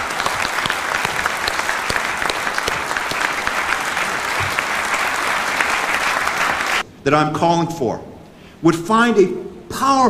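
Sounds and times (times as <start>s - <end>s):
large audience applauding: 0.0s - 6.8s.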